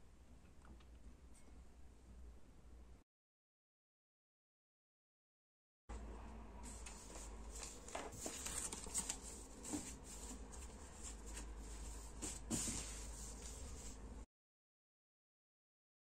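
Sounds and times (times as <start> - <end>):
low steady hum: 5.9 - 14.3
paper rustling: 6.6 - 14.0.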